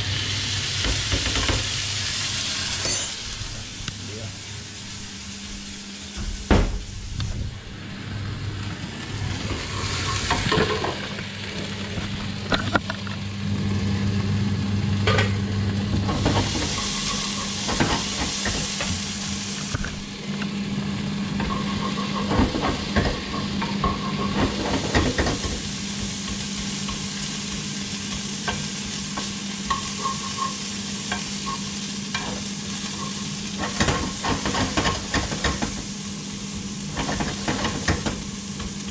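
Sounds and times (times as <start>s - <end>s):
peanuts sizzling in pan: 0.0s - 4.1s, 14.0s - 19.8s, 20.7s - 38.9s.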